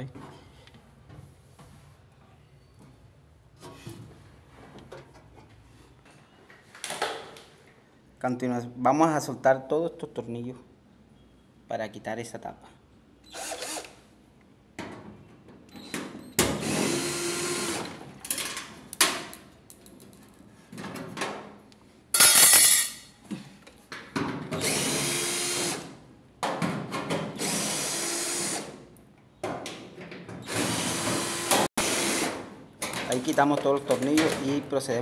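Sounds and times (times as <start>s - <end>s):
cordless drill bursts: 13.3s - 14.0s, 16.5s - 18.0s, 24.6s - 25.9s, 27.4s - 28.7s, 30.5s - 32.4s.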